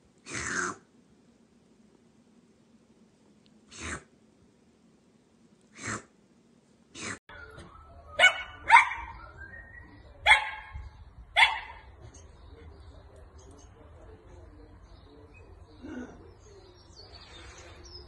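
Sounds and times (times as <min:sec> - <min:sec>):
small dog barking: 0:08.2 - 0:09.2, 0:10.2 - 0:10.8, 0:11.4 - 0:12.0.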